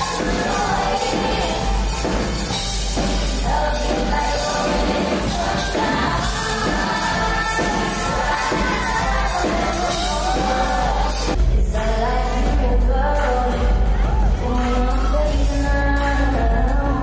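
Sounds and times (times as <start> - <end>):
woman singing into a microphone: 0.0 - 2.3, 2.9 - 17.0
loud band playing: 0.0 - 11.8.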